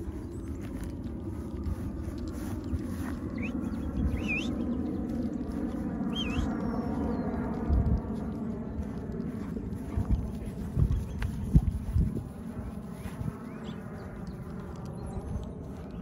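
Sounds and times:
wind rumbling on microphone: 0.0s - 16.0s
bird chirping: 2.6s - 7.5s, 13.0s - 16.0s.

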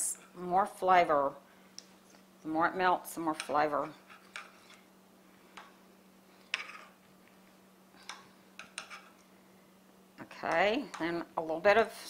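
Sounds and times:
faint steady hum: 0.0s - 12.0s
spoon scraping cutting board: 6.4s - 7.0s, 8.0s - 9.3s.

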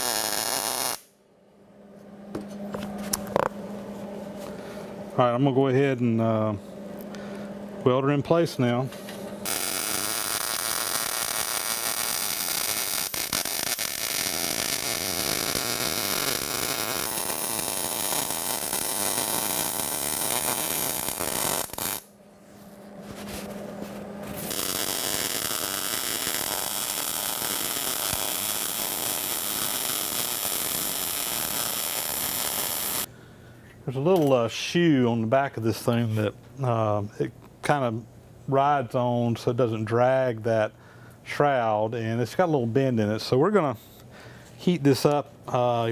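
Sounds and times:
welder arc running: 0.0s - 1.2s, 4.4s - 22.2s, 23.3s - 33.1s.

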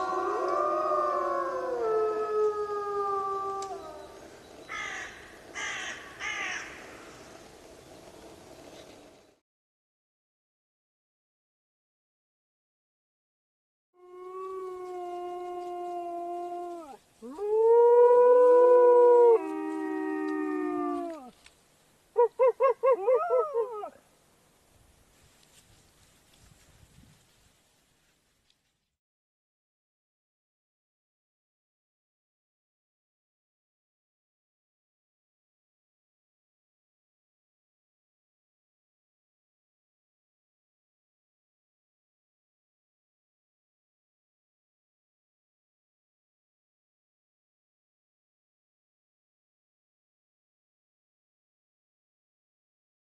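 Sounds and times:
wolves howling: 0.0s - 4.3s, 14.0s - 21.4s, 22.2s - 24.0s
wolves howling in chorus: 0.0s - 4.3s
harsh caws: 4.7s - 7.1s.

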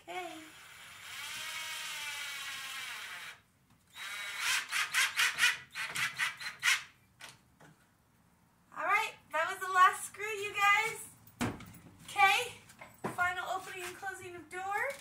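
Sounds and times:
cordless drill motor whine: 0.5s - 4.5s
drill trigger pulses: 0.5s - 6.9s.

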